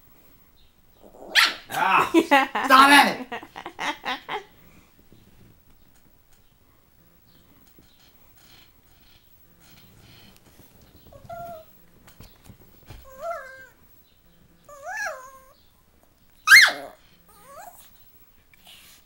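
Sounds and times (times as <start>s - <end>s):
small dog whining: 11.1s - 11.7s, 13.0s - 13.8s, 14.7s - 15.6s, 16.4s - 17.9s.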